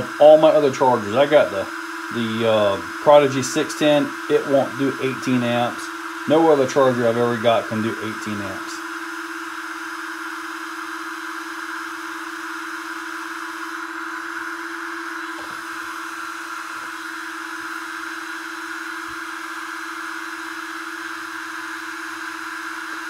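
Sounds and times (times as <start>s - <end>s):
constant hum: 0.0s - 8.9s
cooling fans whirring: 0.0s - 23.0s.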